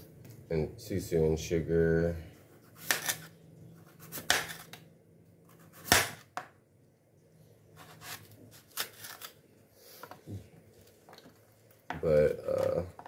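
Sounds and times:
knife slicing sweet potato: 2.6s - 4.8s, 5.5s - 6.4s, 7.8s - 9.4s.

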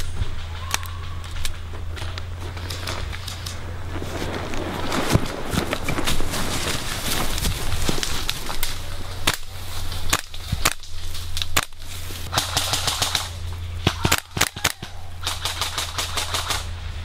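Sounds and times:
airsoft guns firing: 9.2s - 16.8s.

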